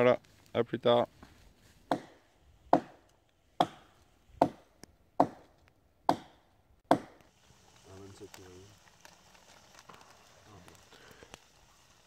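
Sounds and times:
hatchet chopping log: 1.9 - 7.3.

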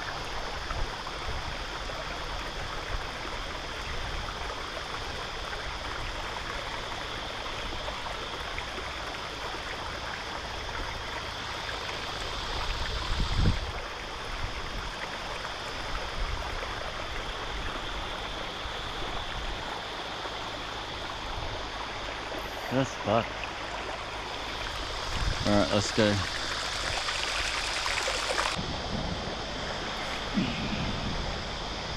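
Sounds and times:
stream water running over rocks: 0.0 - 31.9
low rumble: 28.6 - 31.9.

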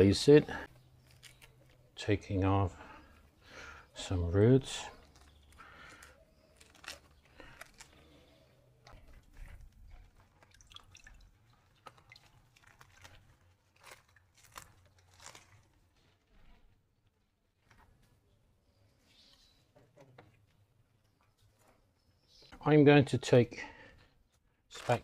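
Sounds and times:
roots and potting mix tearing: 0.8 - 2.4, 3.9 - 18.1, 24.3 - 25.0.

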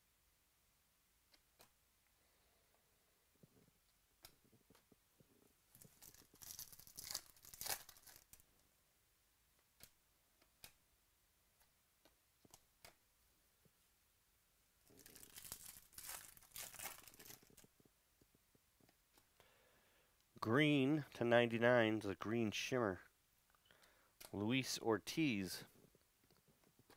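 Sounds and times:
foil wrapper tearing and crinkling: 5.8 - 8.4, 14.9 - 17.6.

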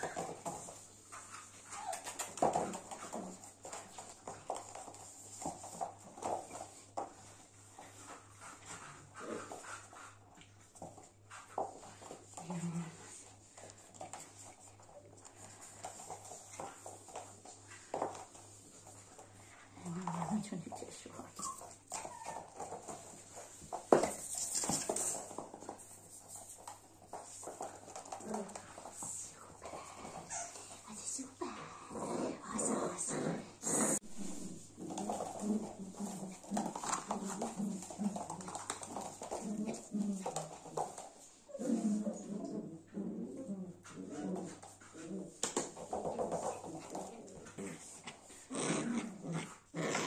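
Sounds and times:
dog claws clicking on hard floor: 0.0 - 31.1, 34.8 - 41.4.

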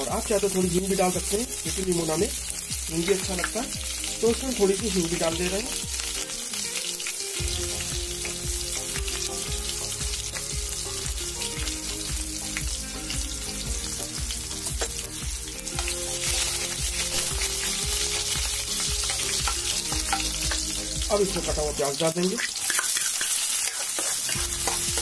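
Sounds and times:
spices sizzling in hot oil: 0.0 - 25.0
steel spatula stirring: 22.4 - 25.0.

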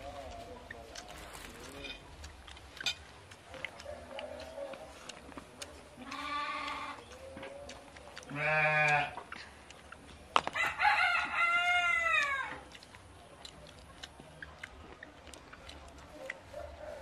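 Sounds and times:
rooster crowing: 10.6 - 12.6.

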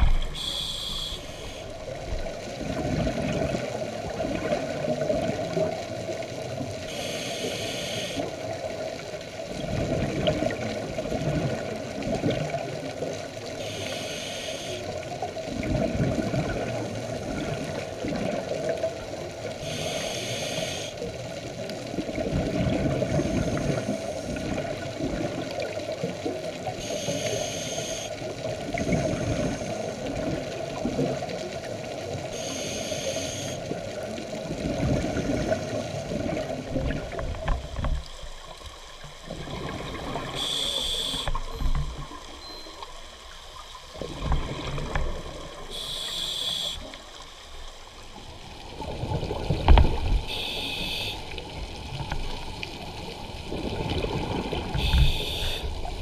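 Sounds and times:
regulator inhalation hiss: 0.0 - 1.8, 6.9 - 8.3, 13.6 - 14.9, 19.6 - 21.0, 26.8 - 28.2, 32.4 - 33.6, 40.3 - 41.3, 45.7 - 47.0, 50.3 - 51.4, 54.8 - 55.7
steady low hum: 0.0 - 2.4
exhaled bubbles bubbling: 0.0 - 6.2, 15.5 - 19.8, 21.8 - 26.9, 33.7 - 42.4, 43.9 - 47.1, 48.2 - 56.0.

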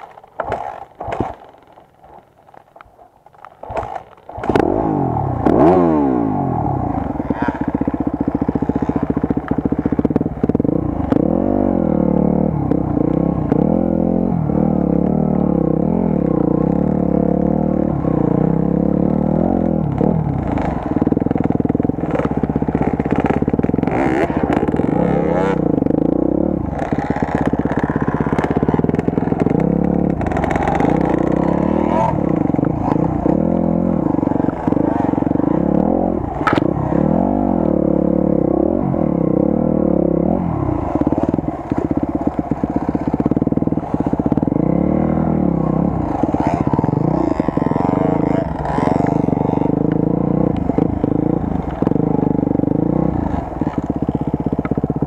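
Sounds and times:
sharp knocks and clatter: 0.0 - 4.8
motorcycle engine revving: 0.0 - 55.0.

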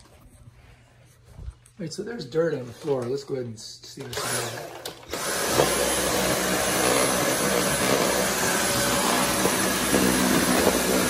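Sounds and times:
vacuum cleaner whirring: 4.0 - 11.0.

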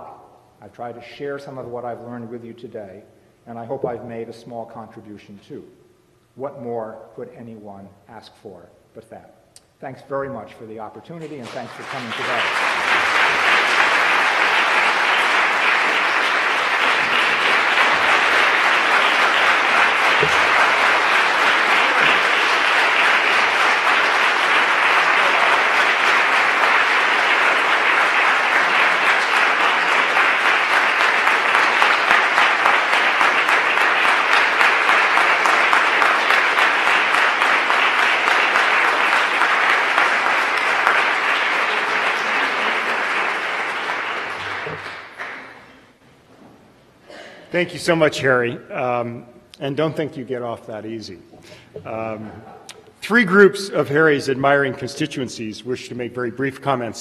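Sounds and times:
audience applauding: 11.3 - 46.0.

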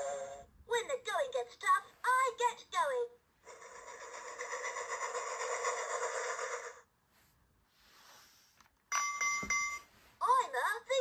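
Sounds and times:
toy train electronic chugging: 3.5 - 6.8.

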